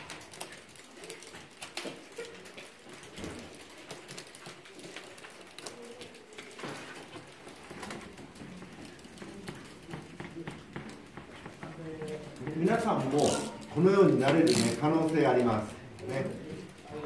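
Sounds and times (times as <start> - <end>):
abacus beads clicking: 12.3 - 16.1.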